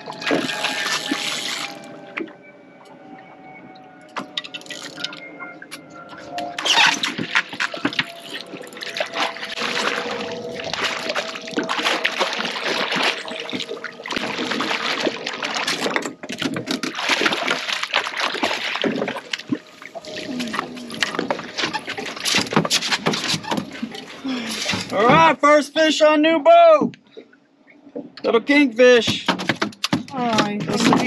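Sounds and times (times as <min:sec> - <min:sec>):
fish thrashing and splashing: 0:00.0 - 0:02.0, 0:06.5 - 0:24.9
water sloshing along boat hull: 0:00.0 - 0:25.4, 0:29.1 - 0:31.0.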